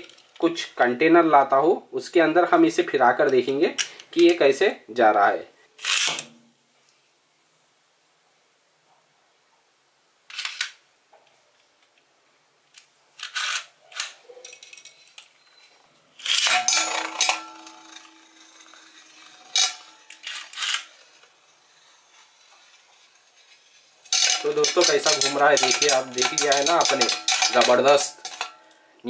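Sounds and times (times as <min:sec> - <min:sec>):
spinning top being handled: 0:10.3 - 0:10.8, 0:12.8 - 0:15.3, 0:16.2 - 0:28.6
spinning top clattering into metal bowl: 0:16.3 - 0:21.3, 0:22.6 - 0:28.7
spinning top knocking against bowl: 0:24.1 - 0:28.6.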